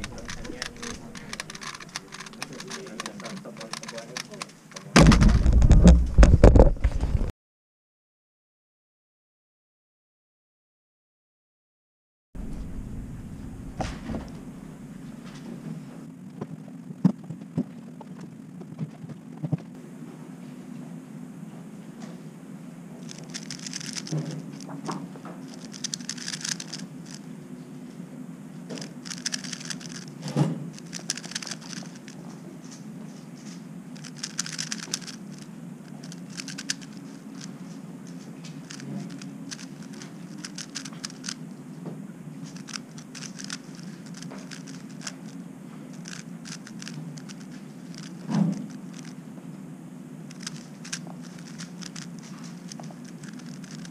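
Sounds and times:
puzzle cube clicking turns: 0:00.0 - 0:06.7, 0:23.0 - 0:27.3, 0:28.8 - 0:32.2, 0:34.0 - 0:41.4, 0:42.5 - 0:49.2, 0:50.3 - 0:53.9.

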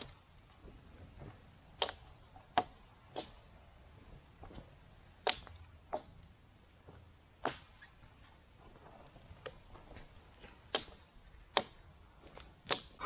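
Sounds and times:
axe chopping wood: 0:01.8 - 0:03.4, 0:05.2 - 0:06.2, 0:07.4 - 0:07.8, 0:10.6 - 0:13.0.

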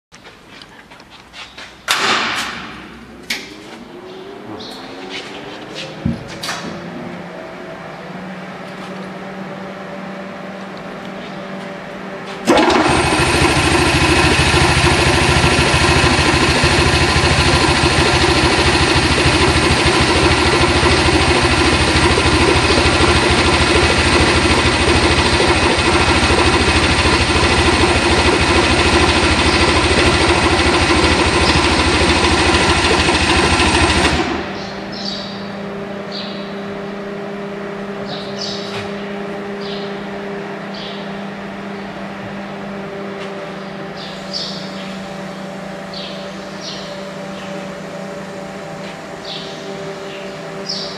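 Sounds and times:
vacuum pump pulsing: 0:12.4 - 0:50.9.

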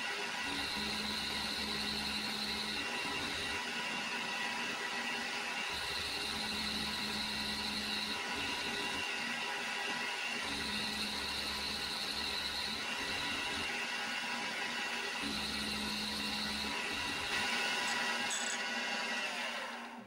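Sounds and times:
milling machine running: 0:00.5 - 0:04.3, 0:05.8 - 0:19.8
high machine whine: 0:15.1 - 0:19.6.

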